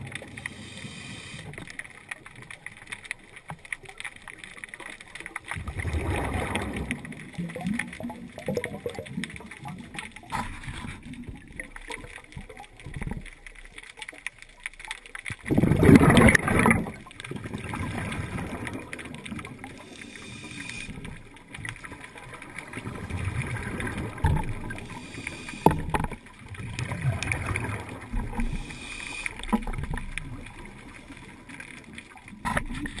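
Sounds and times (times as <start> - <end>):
diver exhaling bubbles underwater: 5.6 - 9.2, 15.4 - 21.0.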